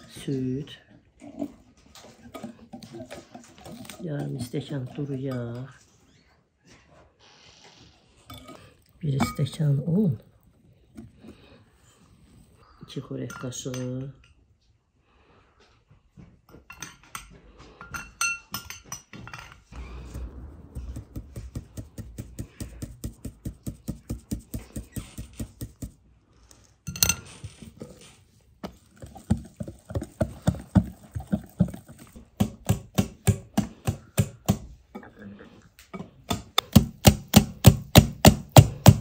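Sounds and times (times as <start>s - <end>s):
sieve shaken and tapped over bowl: 21.0s - 26.0s.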